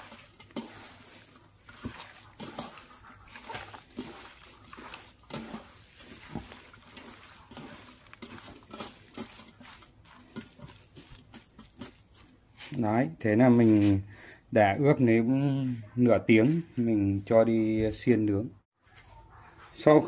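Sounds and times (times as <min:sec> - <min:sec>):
hands kneading wet meat: 0:00.0 - 0:14.0.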